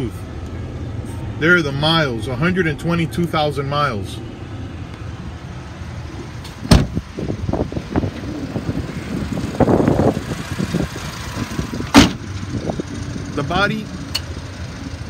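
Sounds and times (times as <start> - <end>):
truck engine idling: 0.0 - 15.0
truck door slamming: 6.4 - 7.0, 11.9 - 12.3.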